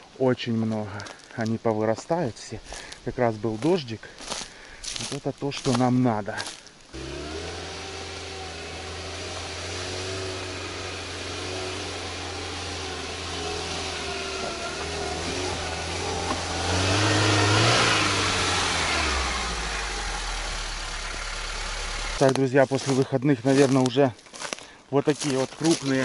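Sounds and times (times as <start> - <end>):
car engine running: 7.0 - 23.8.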